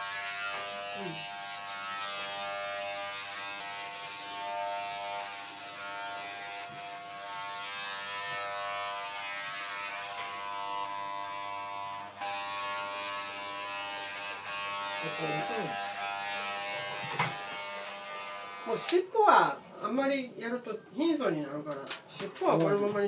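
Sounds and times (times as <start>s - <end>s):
electric clipper buzzing: 0.0s - 19.0s.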